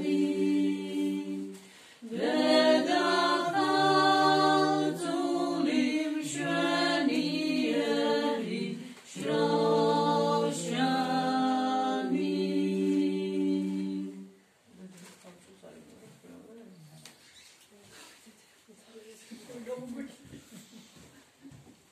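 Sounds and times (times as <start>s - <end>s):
women singing a hymn: 0.0s - 14.4s.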